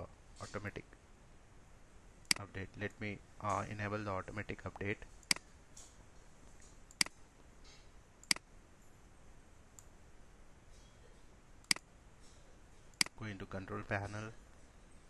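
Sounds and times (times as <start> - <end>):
faint steady hiss: 0.0 - 15.0
computer mouse clicks: 6.9 - 7.2.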